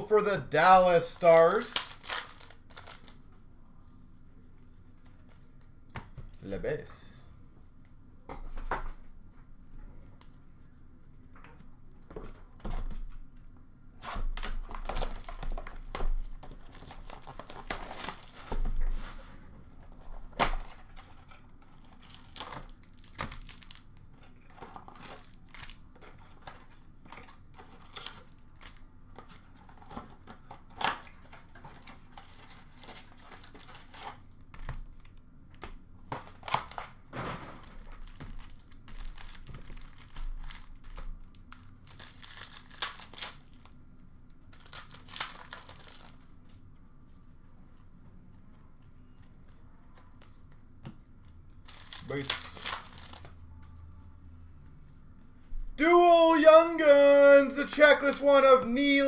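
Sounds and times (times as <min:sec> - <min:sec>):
wrappers crinkling and rustling: 0:01.0 - 0:03.3, 0:14.6 - 0:18.8, 0:20.7 - 0:35.2, 0:37.6 - 0:43.8, 0:44.4 - 0:47.9, 0:51.6 - 0:53.4.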